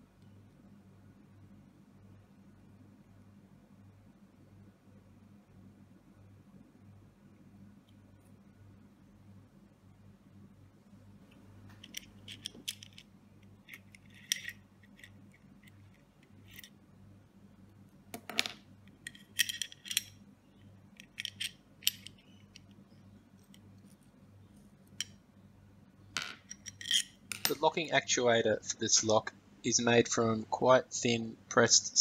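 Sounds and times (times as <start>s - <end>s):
small metal lock parts clinking: 11.7s - 16.8s, 18.2s - 22.8s, 26.4s - 27.6s.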